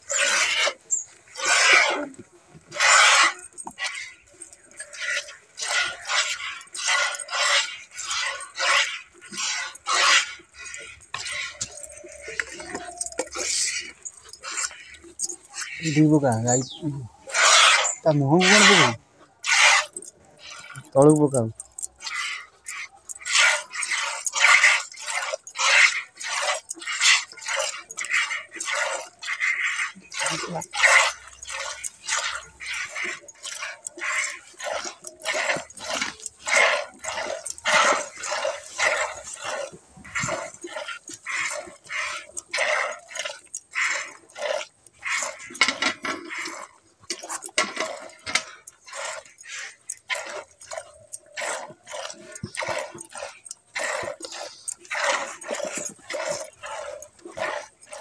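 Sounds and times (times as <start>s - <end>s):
milk squirting into plastic bucket: 17.3s - 58.0s.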